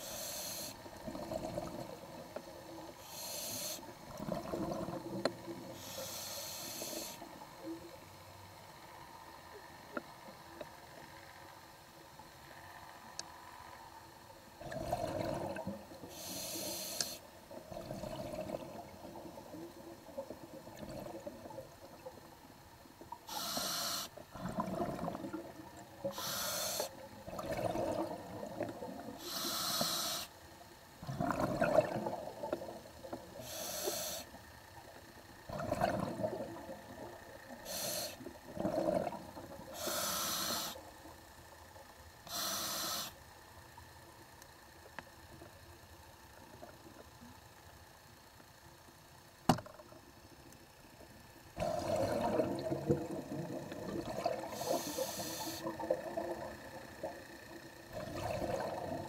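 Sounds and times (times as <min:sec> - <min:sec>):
regulator hissing inhales: 0:00.0 - 0:00.8, 0:03.0 - 0:03.8, 0:05.8 - 0:07.2, 0:16.1 - 0:17.2, 0:23.3 - 0:24.2, 0:26.1 - 0:26.9, 0:29.2 - 0:30.3, 0:33.4 - 0:34.4, 0:37.6 - 0:38.2, 0:39.8 - 0:40.8, 0:42.3 - 0:43.2, 0:54.5 - 0:55.7
bubbling exhales: 0:01.0 - 0:02.0, 0:04.0 - 0:05.9, 0:14.6 - 0:15.8, 0:17.6 - 0:21.7, 0:24.3 - 0:26.3, 0:27.2 - 0:29.4, 0:31.0 - 0:33.5, 0:35.5 - 0:40.7, 0:51.6 - 0:59.0.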